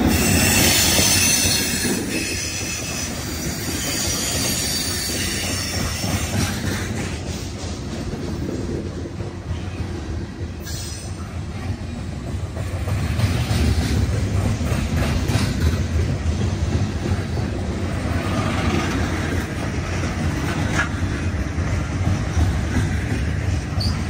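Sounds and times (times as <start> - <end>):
train wheels rumbling on rail: 0.0 - 24.0
wheels clicking over rail joints: 12.1 - 24.0.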